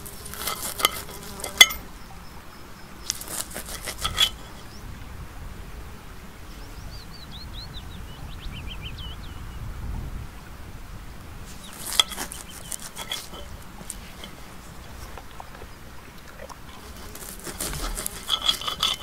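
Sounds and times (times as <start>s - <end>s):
knife and fork scraping plate: 0.0s - 1.8s, 3.1s - 4.7s, 11.5s - 14.8s, 16.8s - 19.0s
songbird twittering: 1.8s - 3.3s, 6.5s - 9.7s.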